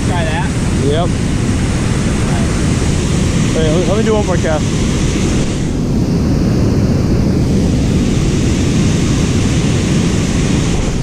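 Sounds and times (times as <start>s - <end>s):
water rushing over spillway: 0.0s - 6.0s.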